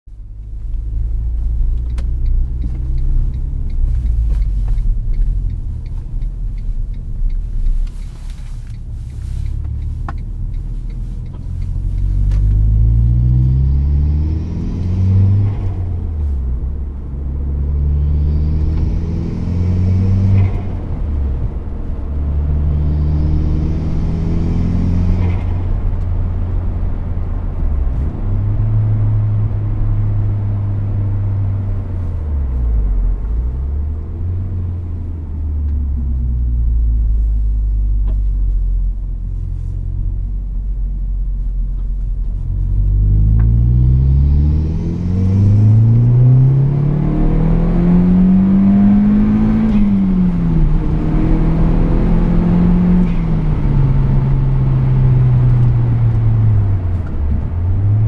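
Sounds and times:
turbocharged car engine revving: 0:11.3 - 0:16.0, 0:17.4 - 0:26.2, 0:42.7 - 0:58.0.

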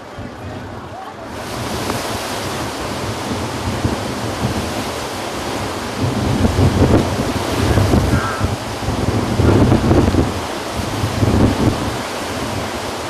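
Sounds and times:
surf breaking against a seawall: 0:00.0 - 0:13.0
wind buffeting the microphone: 0:00.0 - 0:13.0.

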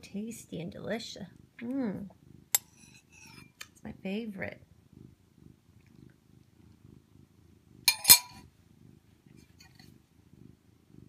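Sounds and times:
cat purring: 0:00.0 - 0:11.0
metal spoon clinking on bowl: 0:02.6 - 0:03.5, 0:07.9 - 0:08.4.

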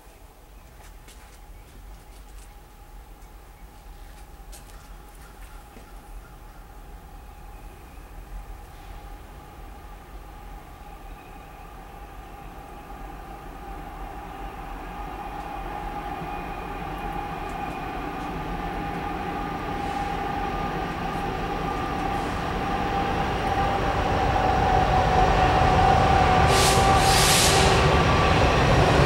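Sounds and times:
diesel locomotive engine rumble: 0:00.9 - 0:29.0
brief hisses: 0:26.5 - 0:27.8.

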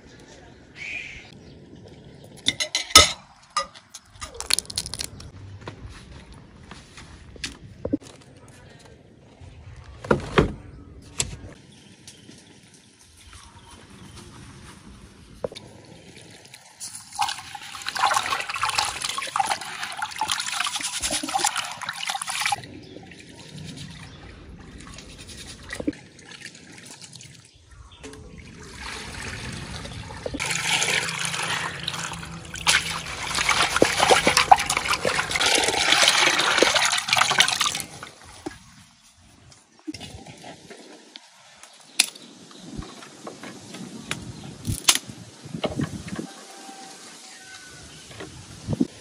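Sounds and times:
water sloshing in metal basin: 0:15.9 - 0:38.6.

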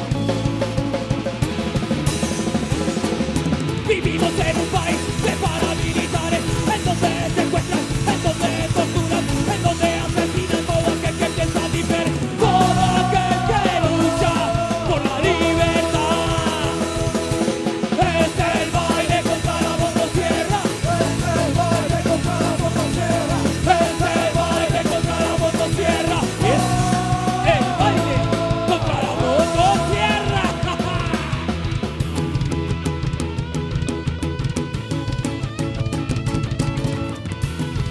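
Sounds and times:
punk band playing live: 0:00.0 - 0:37.9
person singing and shouting: 0:03.8 - 0:32.0.

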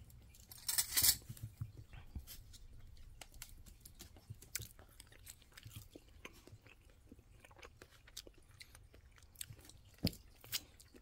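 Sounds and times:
chewing clicks and smacks: 0:02.8 - 0:11.0.

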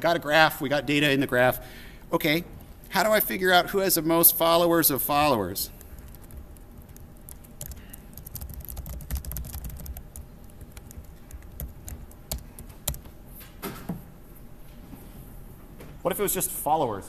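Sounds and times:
computer keyboard typing: 0:05.2 - 0:13.2.

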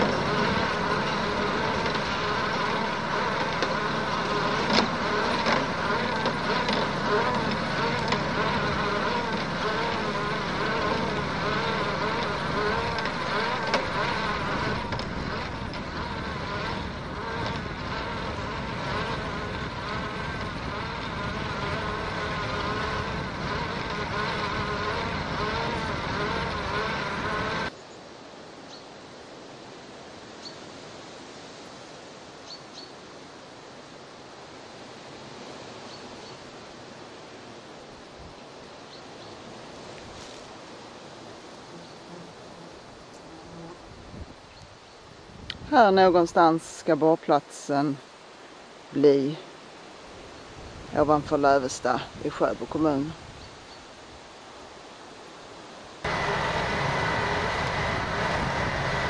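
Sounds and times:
drilling rig mechanical din: 0:00.0 - 0:27.7, 0:56.0 - 0:59.0
faint outdoor hiss: 0:00.0 - 0:59.0.

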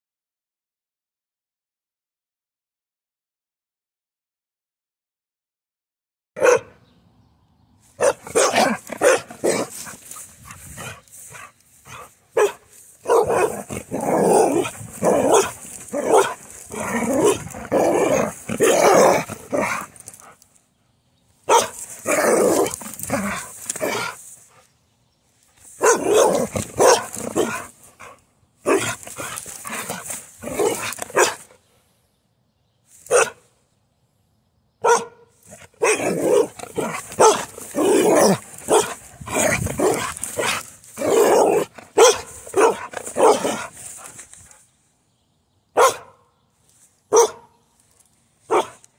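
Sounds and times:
dog barking excitedly: 0:06.4 - 0:06.8, 0:08.0 - 0:20.4, 0:21.5 - 0:24.2, 0:25.8 - 0:31.5, 0:33.1 - 0:33.4, 0:34.8 - 0:44.2, 0:45.8 - 0:46.2, 0:47.1 - 0:47.5, 0:48.5 - 0:48.8.

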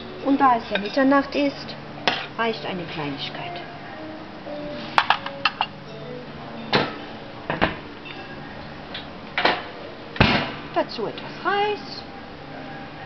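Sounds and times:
metal spoon clinking on dish: 0:00.6 - 0:01.2.

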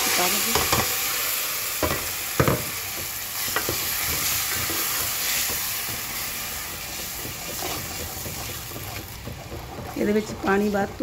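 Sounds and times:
tomato puree sizzling in a pot: 0:00.0 - 0:11.0
wooden spoon knocking against pot: 0:01.8 - 0:04.3, 0:05.0 - 0:10.6.

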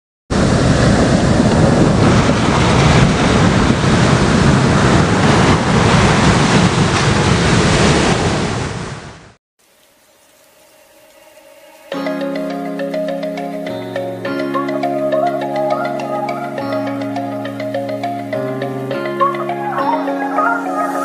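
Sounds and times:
waves breaking: 0:00.3 - 0:09.3.

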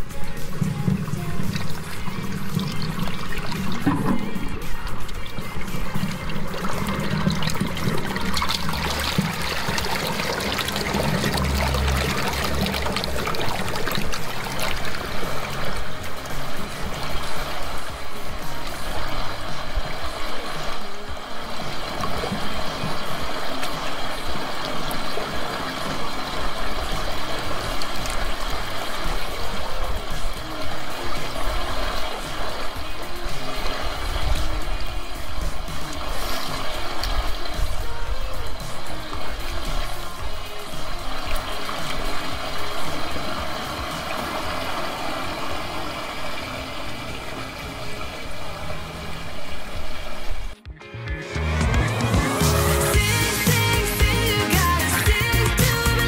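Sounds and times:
water trickling into drain: 0:00.0 - 0:50.6
background music: 0:00.0 - 0:56.0
low engine hum: 0:08.3 - 0:17.8.

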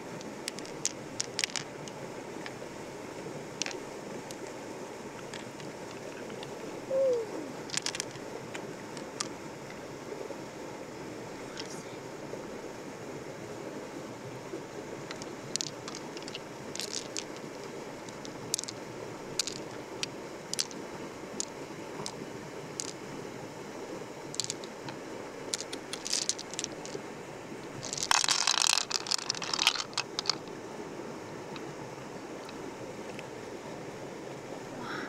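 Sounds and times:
crunching and scraping clicks: 0:07.7 - 0:08.2, 0:15.1 - 0:17.5, 0:24.4 - 0:24.7, 0:25.5 - 0:27.0, 0:27.8 - 0:30.5.

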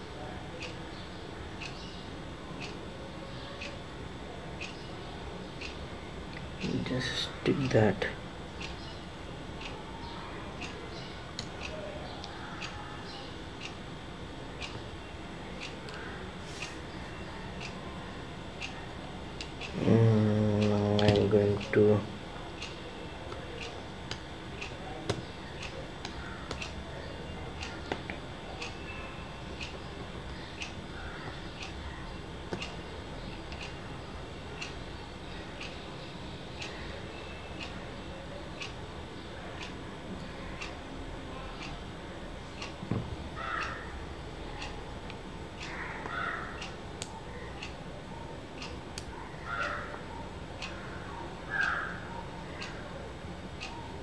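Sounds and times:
steady ticking: 0:27.5 - 0:34.8.

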